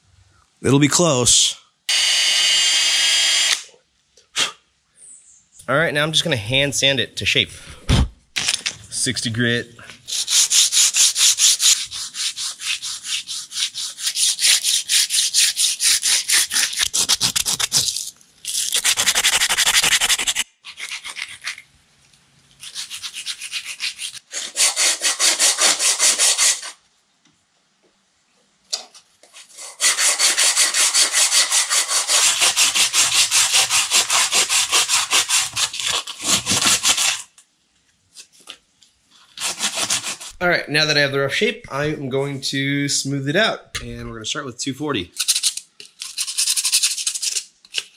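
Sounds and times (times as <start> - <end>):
sandpaper scratching wood: 10.1 - 21.6, 22.6 - 26.8, 29.4 - 37.3, 39.3 - 40.4, 45.2 - 47.5.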